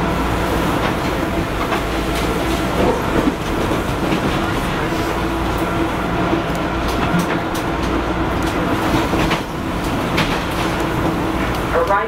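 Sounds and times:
subway car rumble: 0.0s - 12.0s.

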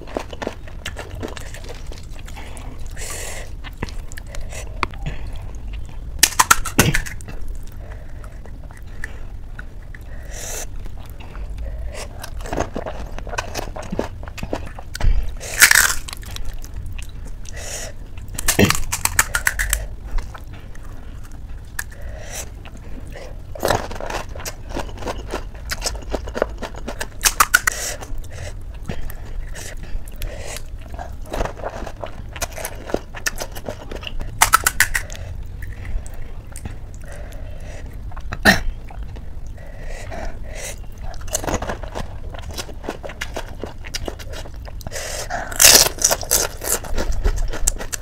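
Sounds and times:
chewing: 0.0s - 48.0s
crisp shells crunching: 6.2s - 7.3s, 15.5s - 16.6s, 18.3s - 19.9s, 23.6s - 28.1s, 30.6s - 35.7s, 45.5s - 48.0s.

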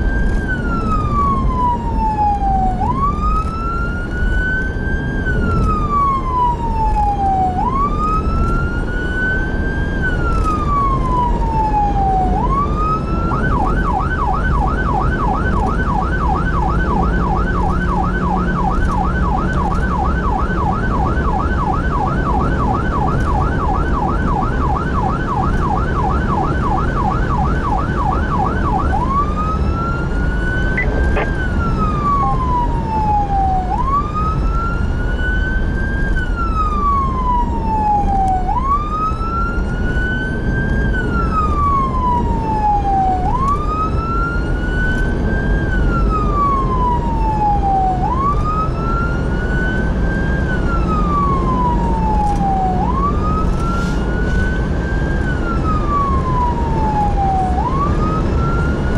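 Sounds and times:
electronic siren wailing and yelping: 0.0s - 58.9s
road and engine noise: 0.0s - 58.9s.

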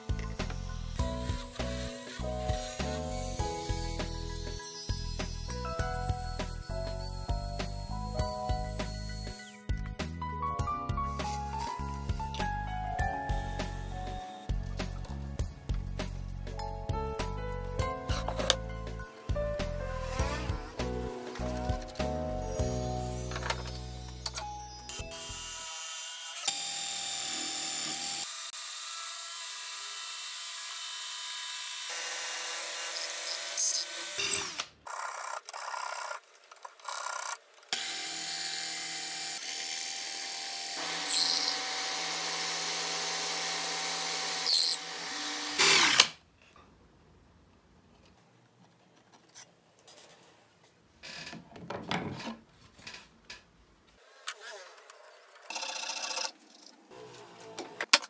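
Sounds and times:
power drill boring into wood: 1.0s - 7.0s, 25.0s - 36.2s, 36.9s - 46.2s
faint knocks and handling: 47.9s - 54.0s.

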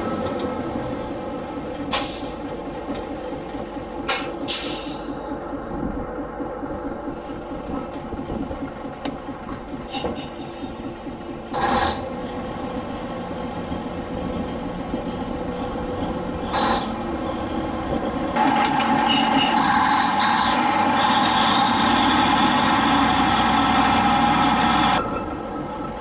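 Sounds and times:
crane machinery rumbling: 0.0s - 26.0s.

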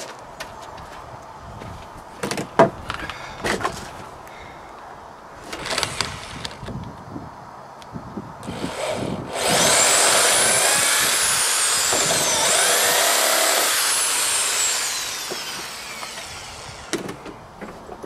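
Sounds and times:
electric drill whining in wood: 5.6s - 6.6s, 8.4s - 17.2s.

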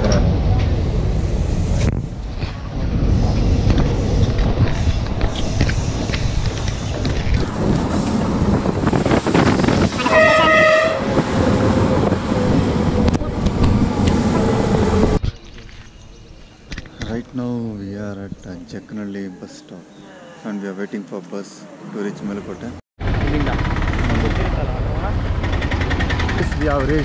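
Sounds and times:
train wheels rumbling on rails: 0.0s - 15.2s, 23.0s - 27.0s
train horn: 10.0s - 11.2s.

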